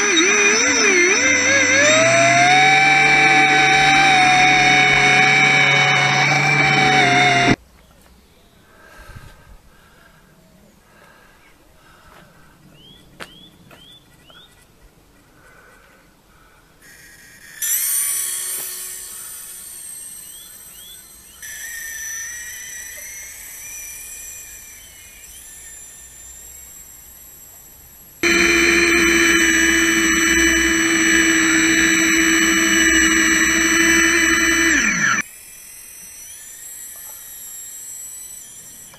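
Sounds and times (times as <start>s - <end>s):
small electric motor whining: 0.0s - 7.6s, 17.6s - 38.9s.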